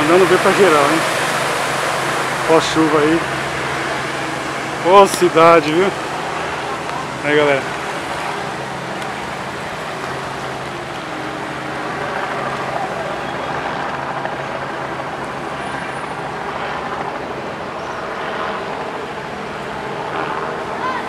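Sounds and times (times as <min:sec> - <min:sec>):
traffic on wet street: 0:00.0 - 0:21.0.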